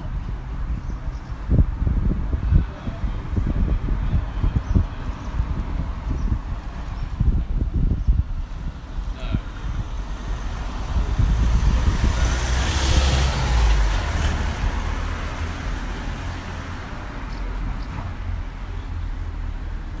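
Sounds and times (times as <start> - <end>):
low road rumble: 0.0 - 20.0
vehicle passing close by: 9.6 - 18.5.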